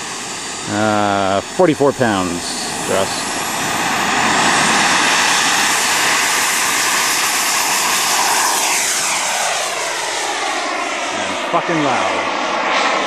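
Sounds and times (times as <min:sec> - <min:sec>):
model jet turbine roaring: 0:00.0 - 0:13.0.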